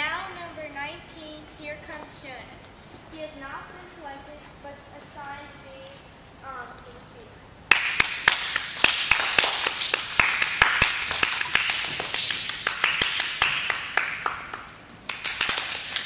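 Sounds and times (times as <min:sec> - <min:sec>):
group clapping: 0:07.7 - 0:16.0.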